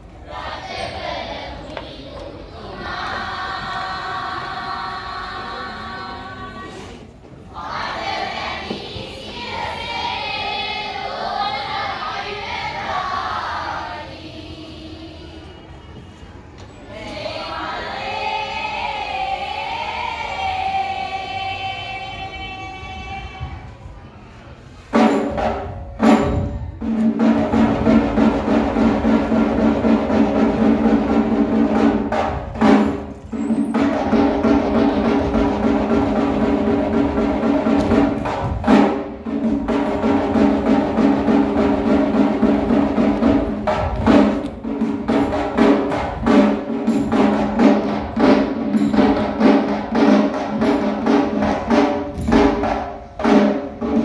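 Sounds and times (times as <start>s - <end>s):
group of voices singing: 0.1s - 15.9s, 16.8s - 23.7s
drum strokes: 24.8s - 54.0s.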